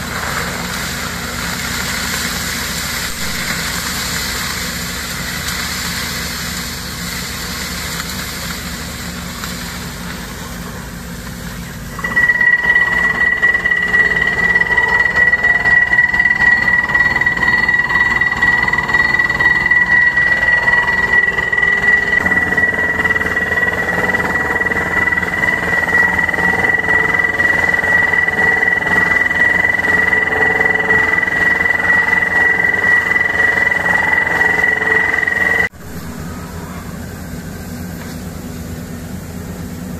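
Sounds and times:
drilling rig running: 0:00.0 - 0:39.9
high-pitched whine: 0:00.0 - 0:39.9
fast rattling drilling beat: 0:12.0 - 0:35.7.

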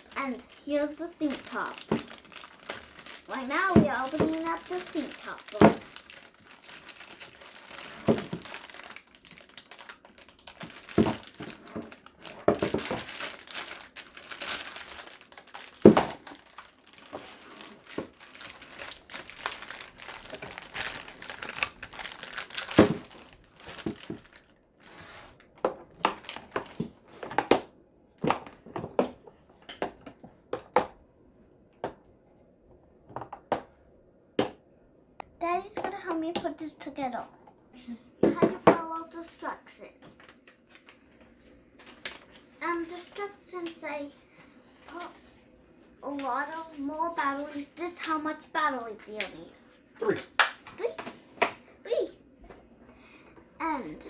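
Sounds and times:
plastic bag crinkling: 0:00.0 - 0:27.3, 0:40.2 - 0:43.8, 0:44.8 - 0:47.8.

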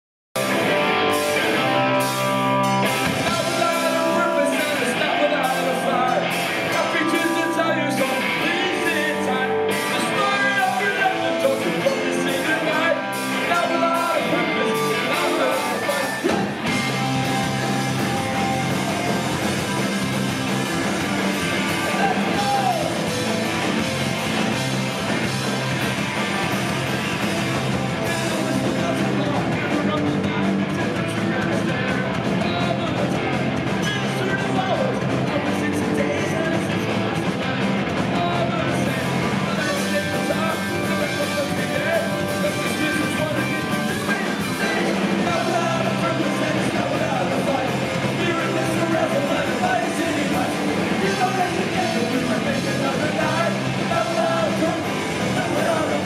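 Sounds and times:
punk rock band playing live: 0:00.4 - 0:56.0
shouted singing: 0:02.8 - 0:24.6, 0:28.0 - 0:56.0.

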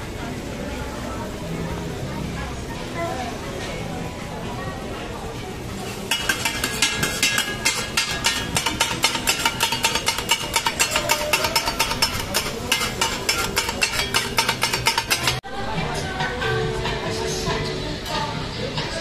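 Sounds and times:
metal spatulas clanking on frying pan: 0:05.8 - 0:15.4.

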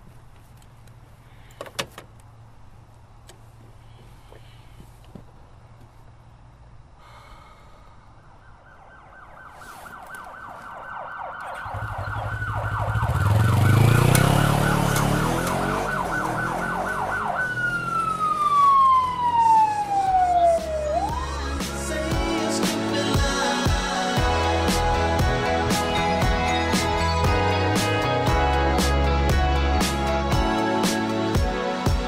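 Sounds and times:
police siren warbling: 0:08.5 - 0:22.1.

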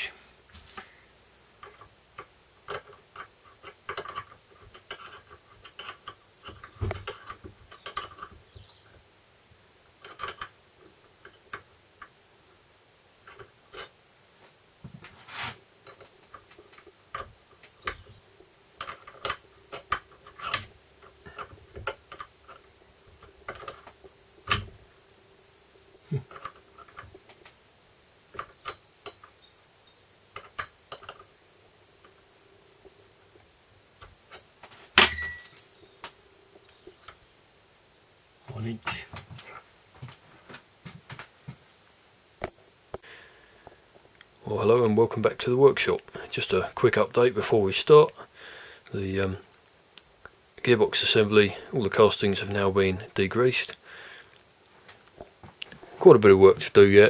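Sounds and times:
spanners clicking on metal bolt: 0:18.8 - 0:22.6.

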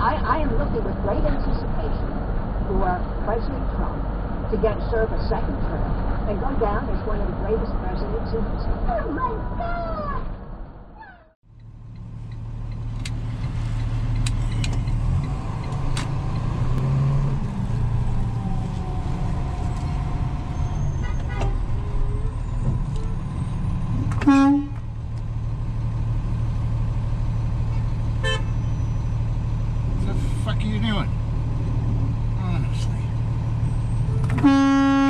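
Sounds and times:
vehicle horn: 0:21.0 - 0:22.3, 0:22.9 - 0:23.3, 0:24.2 - 0:24.8, 0:28.2 - 0:28.7, 0:34.3 - 0:35.0.

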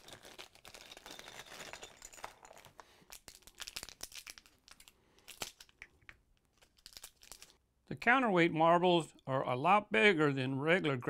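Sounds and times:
plastic bag crinkling: 0:00.0 - 0:05.8, 0:06.5 - 0:07.6.

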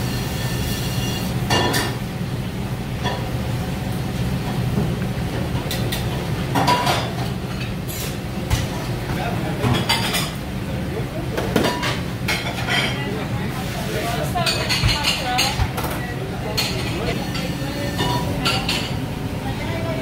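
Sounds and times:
kitchen low rumble: 0:00.0 - 0:20.0
dishes and utensils clinking: 0:00.5 - 0:02.0, 0:05.6 - 0:08.7, 0:09.6 - 0:10.4, 0:11.4 - 0:13.1, 0:14.0 - 0:19.0.

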